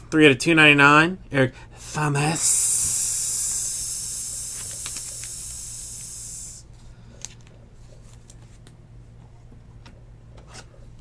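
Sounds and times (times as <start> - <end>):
steady high hiss: 1.8 - 6.7.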